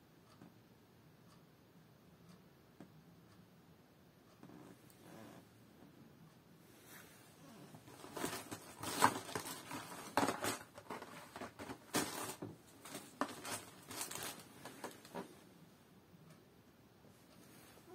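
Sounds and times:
plastic packaging crinkling: 7.8s - 15.3s.

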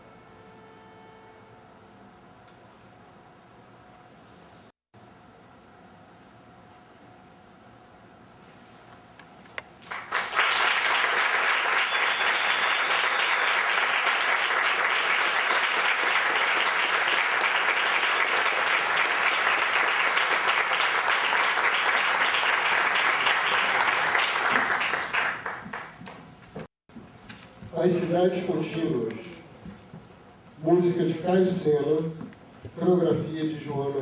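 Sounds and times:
audience applauding: 9.8s - 26.2s.

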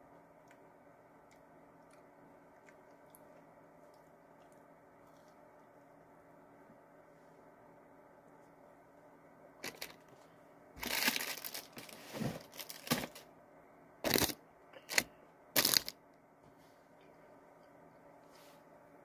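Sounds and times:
plastic wrapper crinkling: 9.6s - 10.0s, 10.8s - 13.2s, 14.1s - 15.9s.

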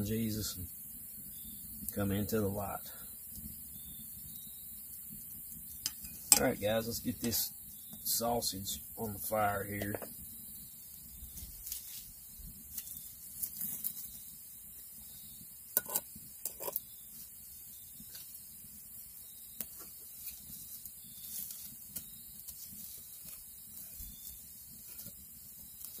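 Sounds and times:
wood fire crackling: 0.0s - 26.0s
knocks of skillet and sticks: 5.8s - 6.6s.

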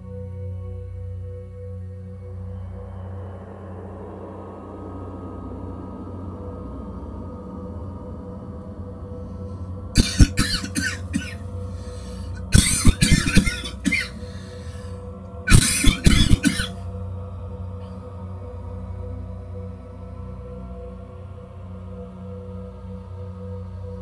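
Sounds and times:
steady low hum: 0.0s - 24.0s
person coughing: 10.0s - 11.4s, 12.5s - 14.2s, 15.5s - 16.8s.

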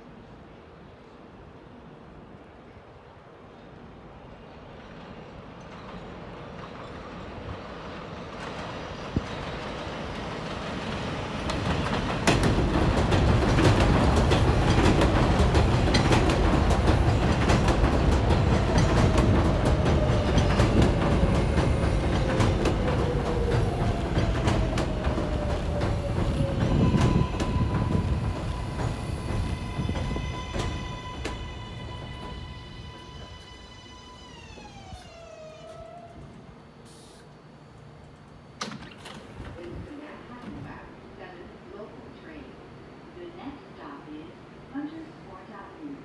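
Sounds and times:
subway train wheels clacking: 3.6s - 40.9s.

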